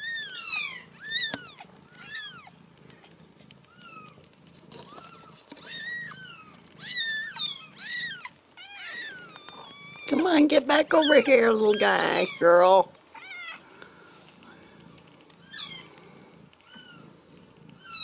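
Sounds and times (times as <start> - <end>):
kittens mewing: 3.5 - 10.3, 16.6 - 18.0
low purr: 14.4 - 18.0.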